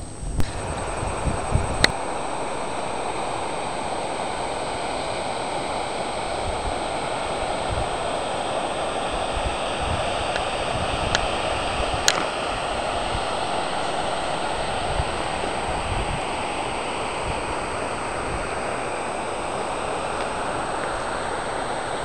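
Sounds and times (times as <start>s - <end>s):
stream rushing: 0.6s - 22.0s
sharp click: 12.1s - 12.4s.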